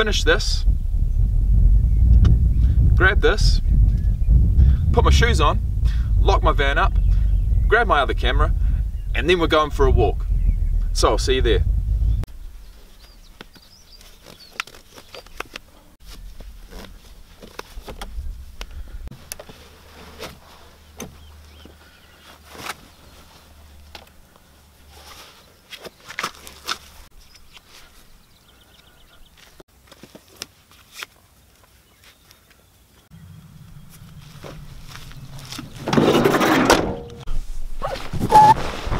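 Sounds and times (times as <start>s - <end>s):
low steady rumble: 0.0s - 13.3s, 16.0s - 19.8s, 33.1s - 37.6s
knocks and clicks of handled gear: 13.0s - 19.6s.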